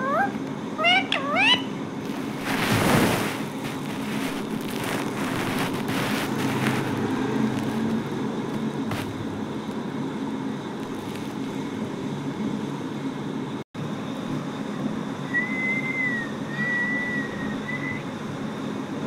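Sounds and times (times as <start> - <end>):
parakeet wings flapping: 2.0 - 9.4.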